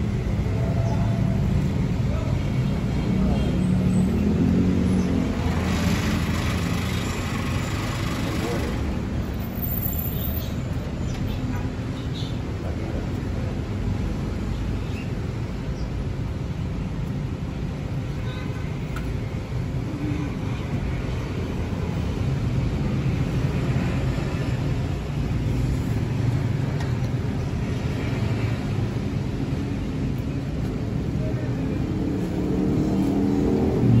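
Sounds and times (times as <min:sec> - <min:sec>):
low rumble of road traffic: 0:00.0 - 0:34.0.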